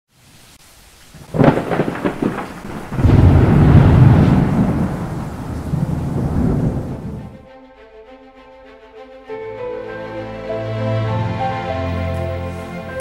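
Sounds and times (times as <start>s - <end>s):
low thunder rumble: 1.2s - 7.4s
thunder clap: 1.2s - 7.4s.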